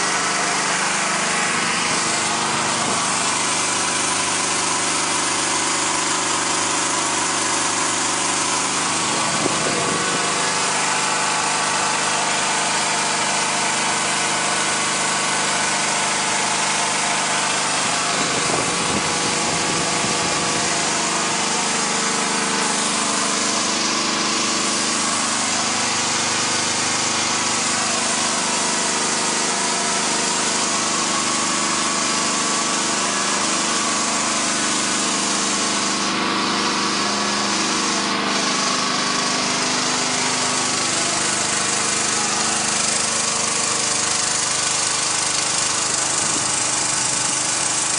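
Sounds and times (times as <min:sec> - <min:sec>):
generator engine running: 0:00.0 - 0:47.9.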